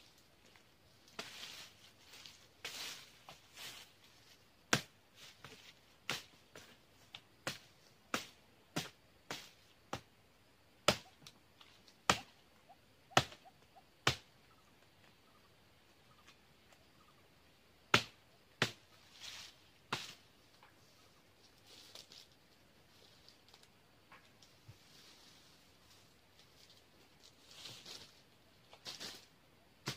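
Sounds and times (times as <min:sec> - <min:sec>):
dry fronds rustling: 0:00.0 - 0:06.8, 0:17.9 - 0:29.9
machete chopping palm fronds: 0:04.7 - 0:06.7, 0:07.4 - 0:10.1, 0:10.8 - 0:11.2, 0:12.1 - 0:12.4, 0:13.1 - 0:14.3, 0:17.9 - 0:18.8, 0:19.4 - 0:20.3, 0:28.8 - 0:29.9.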